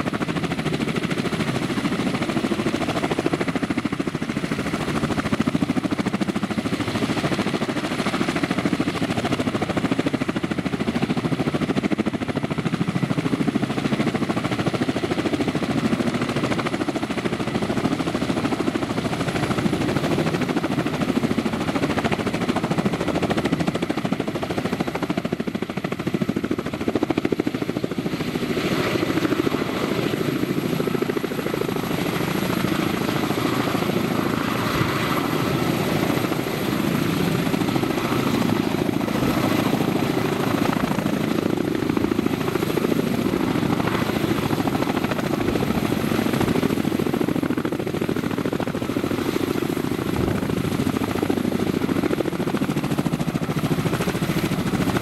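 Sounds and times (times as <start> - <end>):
helicopter engines and rotors: 0.0 - 55.0.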